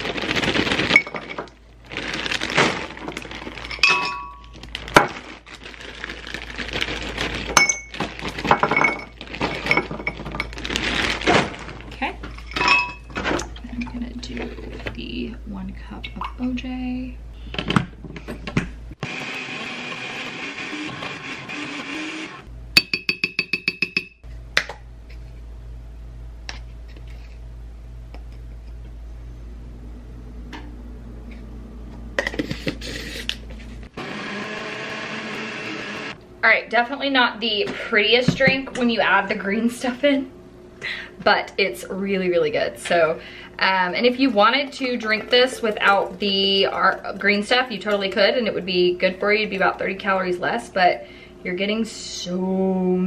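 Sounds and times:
plastic bag crinkling: 0:00.0 - 0:12.3
frozen fruit clinking into glass jar: 0:00.0 - 0:13.2
blender running: 0:19.0 - 0:22.5, 0:32.7 - 0:36.2.

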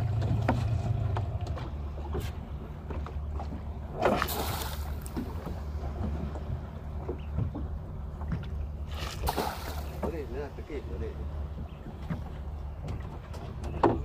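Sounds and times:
outboard motor idling: 0:00.0 - 0:14.0
traps splashing into water: 0:03.9 - 0:06.2, 0:08.3 - 0:10.4.

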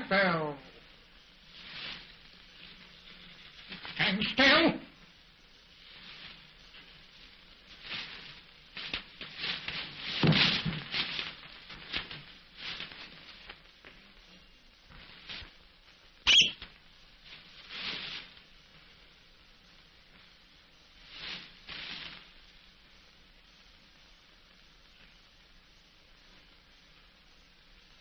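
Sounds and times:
paper crinkling and rustling: 0:07.8 - 0:14.0
short sharp high-pitched sound: 0:16.3 - 0:16.6.

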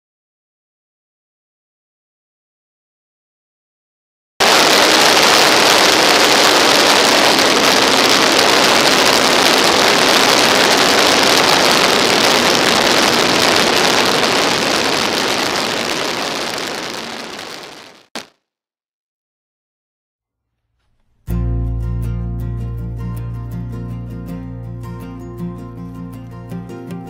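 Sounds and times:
wind noise: 0:04.4 - 0:18.0.

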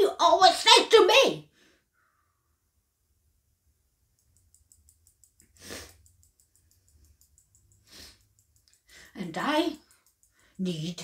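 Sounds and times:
short sniff: 0:05.4 - 0:06.1, 0:07.8 - 0:08.3.

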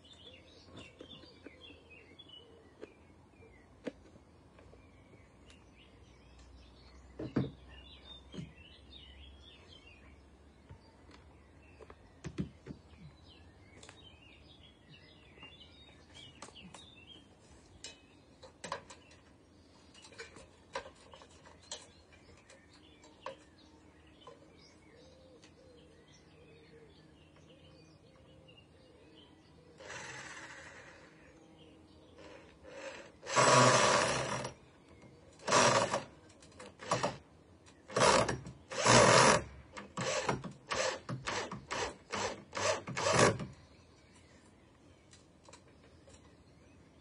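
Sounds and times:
birdsong: 0:00.0 - 0:47.0
knocks and clicks of timber and tools: 0:07.2 - 0:07.6, 0:08.3 - 0:08.6, 0:11.8 - 0:13.2, 0:17.8 - 0:23.5, 0:33.3 - 0:43.6.

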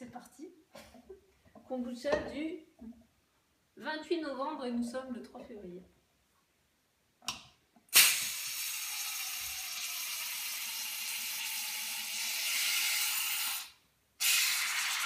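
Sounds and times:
gas hissing from bottle cap: 0:07.9 - 0:11.6, 0:12.3 - 0:15.0.

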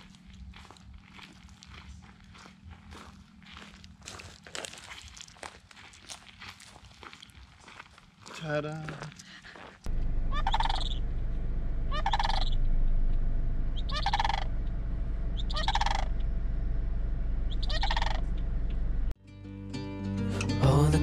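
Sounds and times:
steady low rumble: 0:09.8 - 0:19.2
cranes calling: 0:10.3 - 0:11.1, 0:11.9 - 0:12.6, 0:13.7 - 0:14.6, 0:15.3 - 0:16.4, 0:17.5 - 0:18.6.

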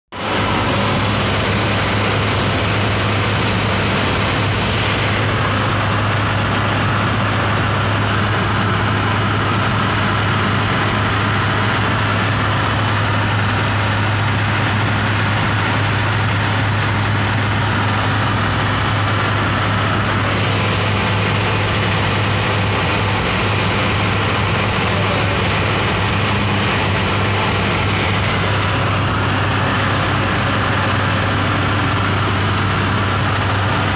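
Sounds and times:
low engine hum: 0:00.1 - 0:33.9
road and wind noise: 0:00.1 - 0:33.9.

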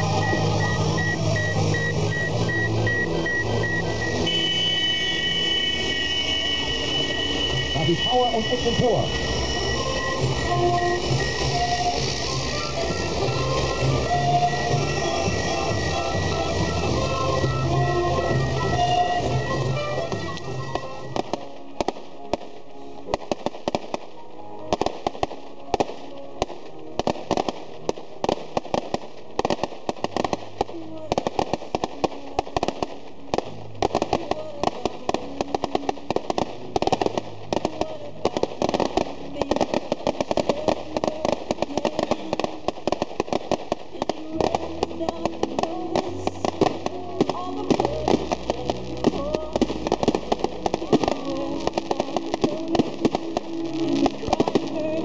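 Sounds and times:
firework fountains crackling: 0:00.0 - 0:55.0
music: 0:00.0 - 0:55.0
voices: 0:07.1 - 0:09.2.

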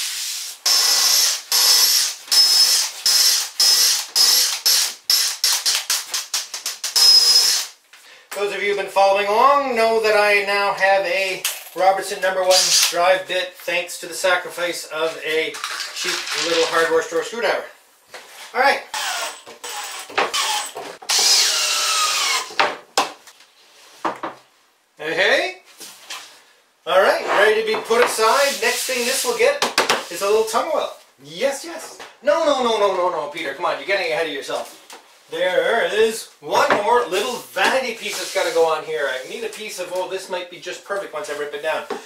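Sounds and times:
power drill driving screws into wood: 0:00.6 - 0:07.8, 0:18.9 - 0:22.7.

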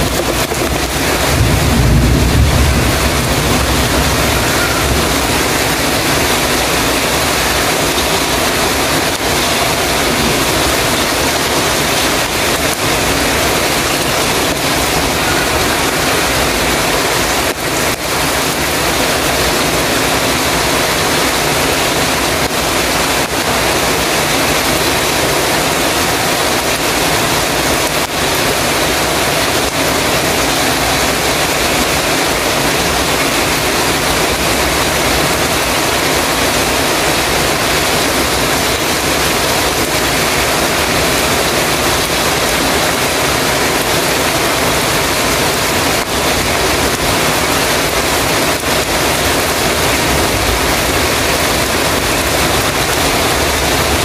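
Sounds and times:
heavy rain on a metal roof: 0:00.0 - 0:54.0.

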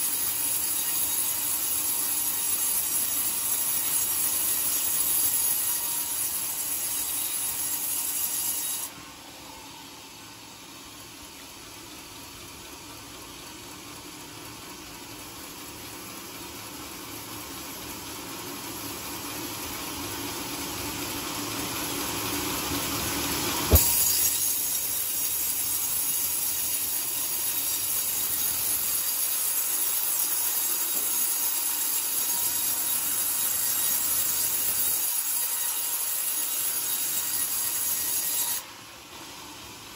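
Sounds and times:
band saw blade cutting log: 0:00.0 - 0:09.0, 0:22.8 - 0:38.7.

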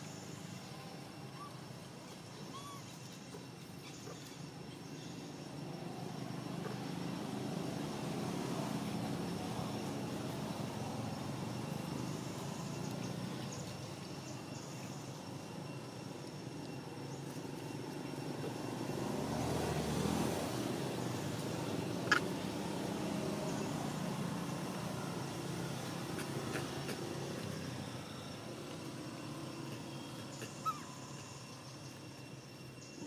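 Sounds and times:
vehicle engine passing: 0:18.4 - 0:29.9.

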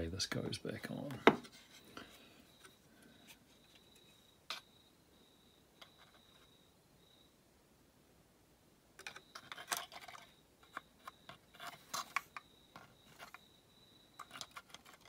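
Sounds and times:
plastic and metal parts clicking: 0:09.0 - 0:13.4, 0:14.2 - 0:15.0.

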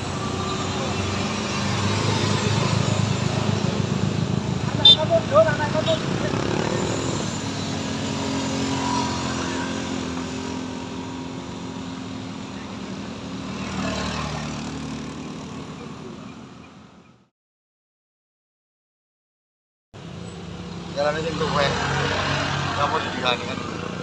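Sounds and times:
car passing: 0:00.0 - 0:15.6, 0:20.5 - 0:24.0
motorcycle engines passing: 0:00.0 - 0:17.0, 0:20.0 - 0:24.0.

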